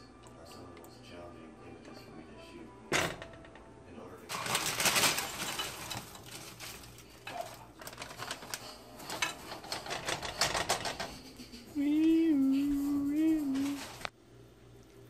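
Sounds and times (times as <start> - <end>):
broccoli clattering into a pot: 4.3 - 11.1.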